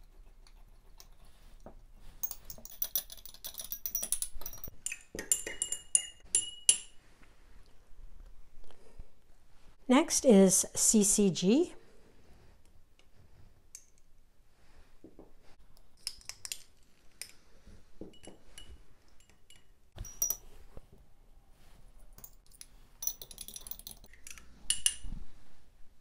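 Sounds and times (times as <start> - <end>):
spatula clinking glass beakers: 2.2 - 7.0, 18.1 - 20.5.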